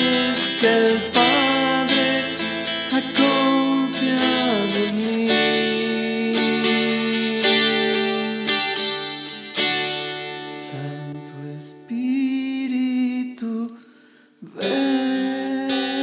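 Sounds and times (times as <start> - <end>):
strummed guitar chord: 0.0 - 11.4
guitar playing slow song: 0.0 - 16.0.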